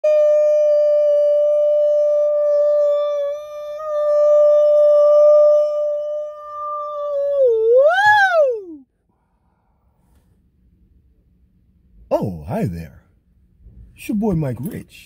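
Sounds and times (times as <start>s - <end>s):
man singing long high note: 0.0s - 8.8s.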